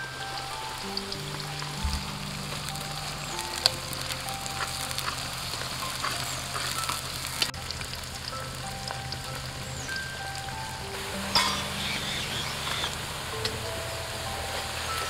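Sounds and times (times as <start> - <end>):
onions sizzling in oil: 0.0 - 15.0
strainer clinking on pan: 11.3 - 11.7.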